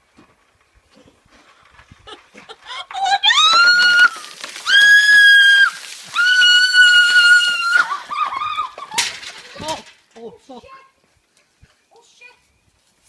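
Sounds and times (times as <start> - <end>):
woman screaming: 2.9 - 8.8
water pouring: 3.3 - 9.8.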